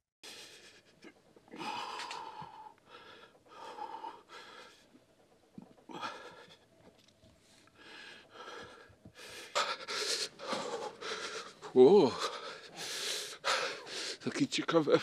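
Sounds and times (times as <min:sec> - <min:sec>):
person gasping for breath: 0:01.6 - 0:04.6.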